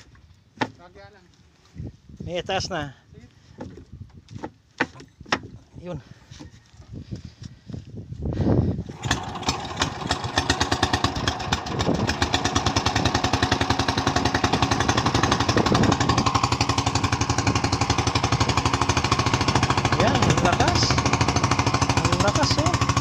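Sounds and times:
small boat engine chugging: 8.9 - 23.0.

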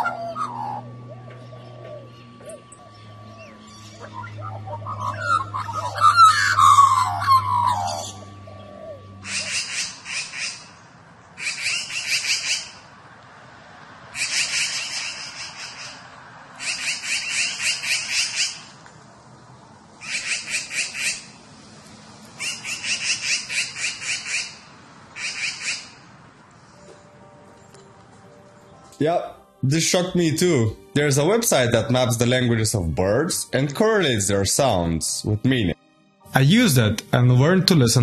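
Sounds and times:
magpies rattling chatter: 0.0 - 12.8, 14.1 - 18.8, 20.0 - 21.4, 22.3 - 26.0
magpies carolling: 0.0 - 12.9, 14.1 - 18.8, 19.9 - 21.5, 22.3 - 26.1.

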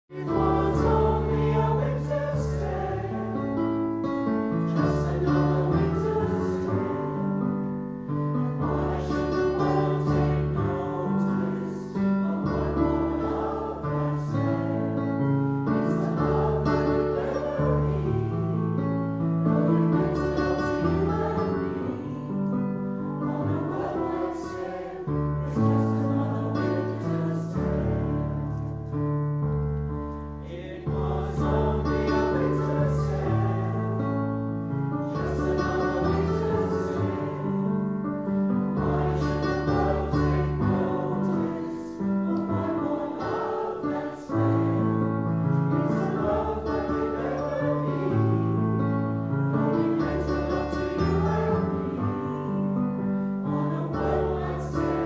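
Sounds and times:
mixed choir singing: 0.1 - 28.8, 30.4 - 55.0
digital piano: 0.1 - 55.0.

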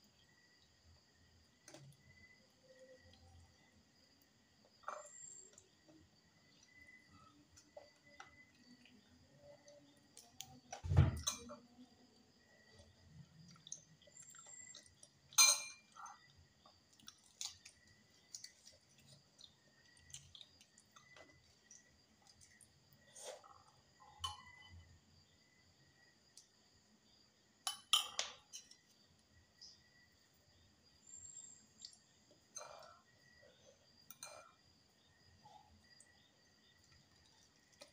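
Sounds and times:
soft chewing and mouth clicks: 12.7 - 24.2, 31.7 - 34.7, 35.5 - 37.9.

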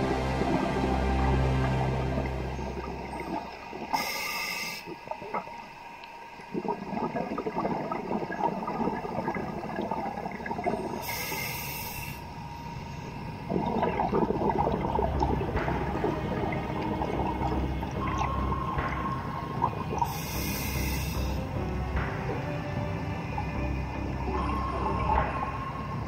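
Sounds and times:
gurgling exhaled bubbles: 0.0 - 5.6, 6.4 - 11.6, 13.4 - 22.4
hissing regulator inhales: 4.0 - 4.9, 11.0 - 13.1, 20.1 - 21.4.

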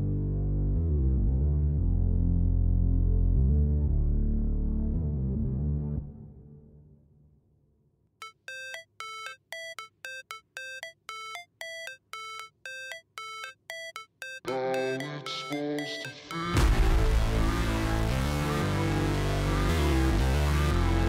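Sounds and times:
bell-like synth riff: 8.2 - 16.9
background music: 14.4 - 21.0.

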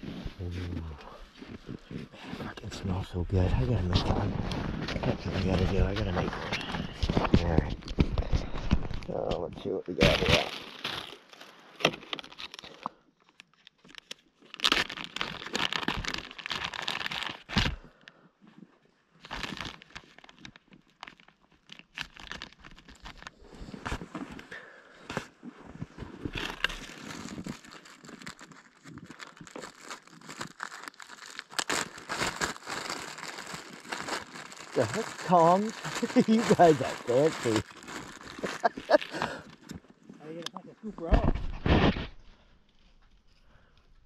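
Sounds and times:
plastic bag crinkling: 10.0 - 17.8, 19.2 - 24.1, 26.1 - 39.8.

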